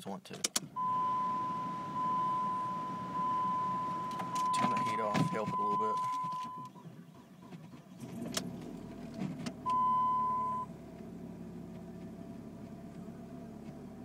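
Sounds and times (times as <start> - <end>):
car engine idling: 0.7 - 14.0
dashboard chime: 0.8 - 6.6
engine cranking with a click: 4.1 - 9.8.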